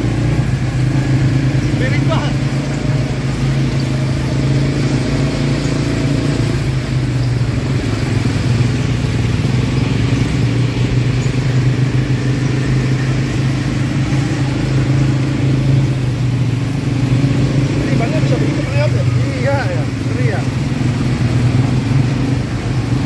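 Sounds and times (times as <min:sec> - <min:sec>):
atv engine droning: 0:00.0 - 0:23.0.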